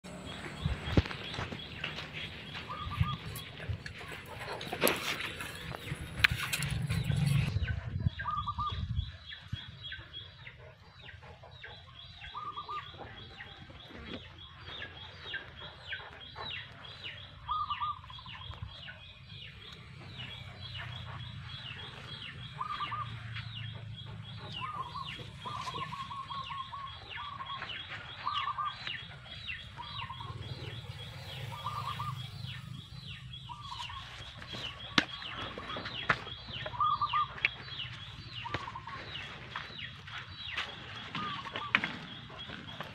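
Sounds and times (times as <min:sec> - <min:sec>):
low hum: 0:00.0 - 0:09.0, 0:19.4 - 0:36.0
chickens clucking: 0:00.1 - 0:08.9, 0:09.6 - 0:42.9.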